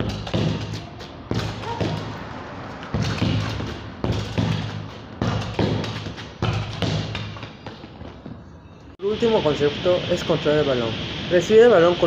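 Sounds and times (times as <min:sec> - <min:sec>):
ball thudding off wall and floor: 0:00.0 - 0:02.3, 0:02.9 - 0:07.5.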